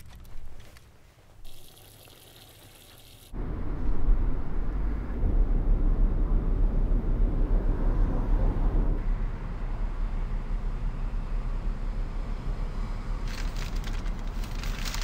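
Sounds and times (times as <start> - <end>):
car road noise: 3.3 - 15.0.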